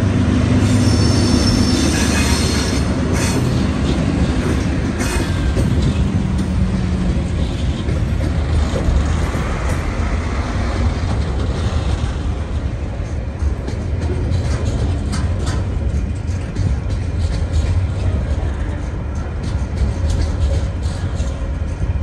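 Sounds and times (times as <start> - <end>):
diesel locomotive rumble: 0.0 - 22.0
wheel squeal: 0.6 - 3.6
freight wagons rolling: 10.8 - 22.0.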